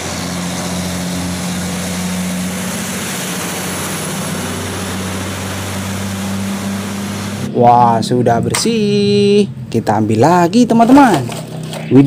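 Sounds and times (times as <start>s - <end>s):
tyres hissing on wet road: 0.0s - 7.5s
truck engine droning: 0.0s - 12.0s.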